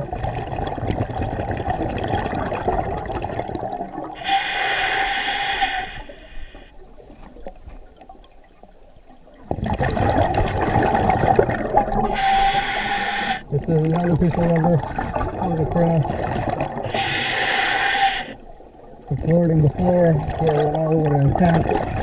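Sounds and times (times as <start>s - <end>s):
diver breathing through regulator: 4.2s - 6.8s, 12.0s - 13.5s, 16.8s - 18.4s.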